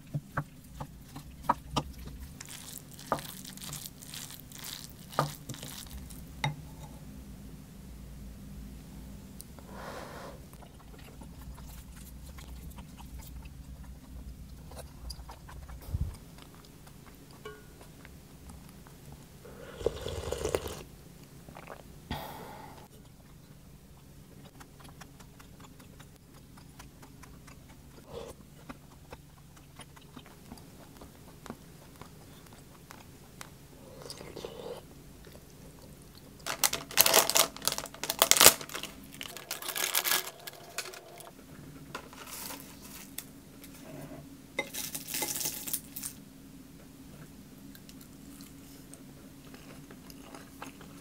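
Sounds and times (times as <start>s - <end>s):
soft chewing: 0.0s - 6.3s, 10.5s - 20.8s, 22.8s - 36.5s, 46.7s - 51.0s
low steady hum: 0.0s - 51.0s.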